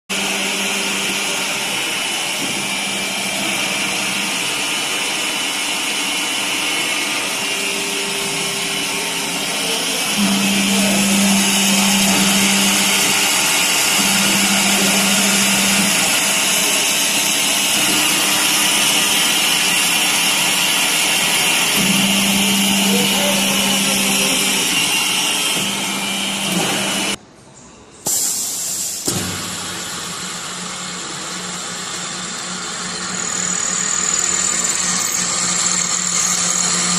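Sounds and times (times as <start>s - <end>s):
drill press machine whine: 0.1s - 27.2s, 28.1s - 36.9s
low machine hum: 0.1s - 27.2s.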